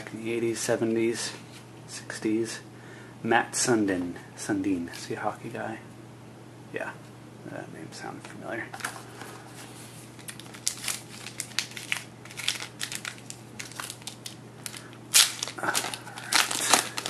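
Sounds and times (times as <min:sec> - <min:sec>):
cards rustling: 0:08.8 - 0:17.0
foil wrapper crinkling: 0:10.1 - 0:17.0.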